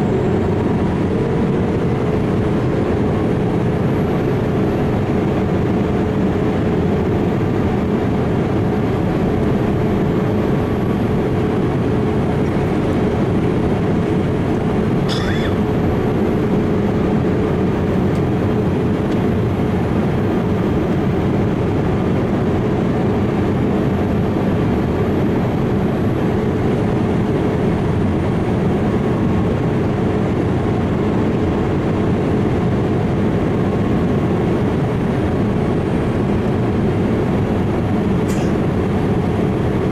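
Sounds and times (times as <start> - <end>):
jet engines rumbling: 0.0 - 39.9.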